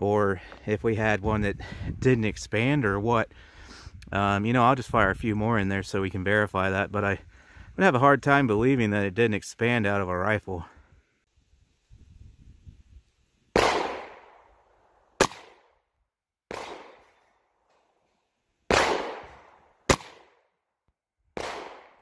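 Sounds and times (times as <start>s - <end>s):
rifle shots: 13.6s - 14.6s, 15.2s - 15.7s, 16.5s - 17.2s, 18.7s - 20.4s, 21.4s - 22.0s.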